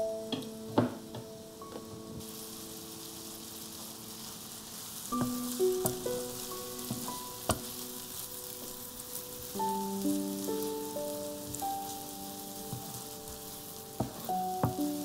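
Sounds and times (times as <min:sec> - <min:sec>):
onion sizzling in a frying pan: 0:00.0 - 0:15.0
soft music with held notes: 0:00.0 - 0:15.0
wooden spoon stirring: 0:04.8 - 0:08.8, 0:11.4 - 0:15.0
spoon tapping against pan: 0:05.2 - 0:06.1, 0:06.9 - 0:07.7.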